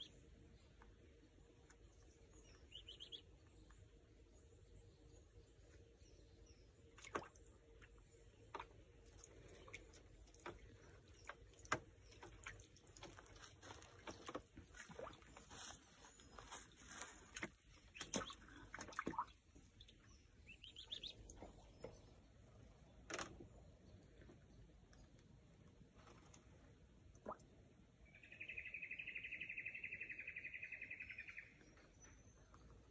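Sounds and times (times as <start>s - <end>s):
duckling splashing in water: 6.9s - 15.5s, 17.3s - 21.9s
water dripping: 7.0s - 15.3s, 17.3s - 22.1s.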